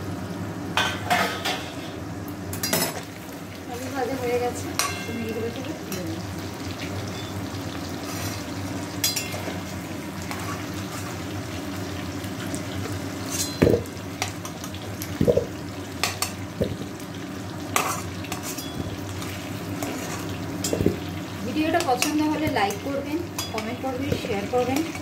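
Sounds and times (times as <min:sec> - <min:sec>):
potatoes sizzling in oil: 0:00.0 - 0:25.0
metal spatula scraping and knocking pan: 0:13.3 - 0:13.9.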